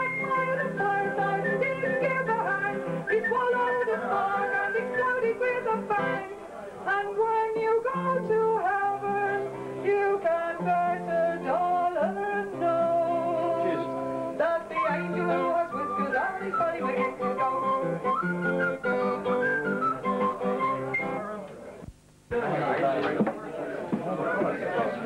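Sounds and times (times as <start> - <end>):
person singing into microphone: 0.0 - 18.0
acoustic guitar: 0.0 - 25.0.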